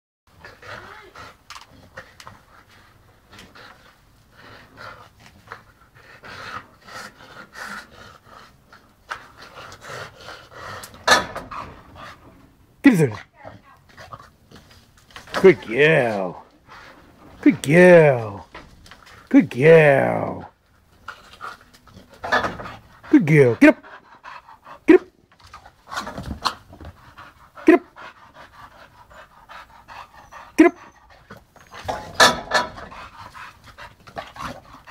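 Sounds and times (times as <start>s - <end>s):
dog panting hard: 0.4s - 12.5s, 21.0s - 34.9s.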